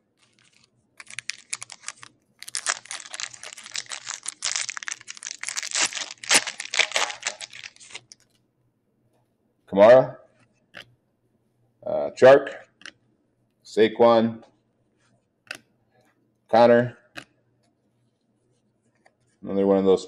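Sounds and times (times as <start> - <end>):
foil wrapper crackling: 0.2 - 8.2.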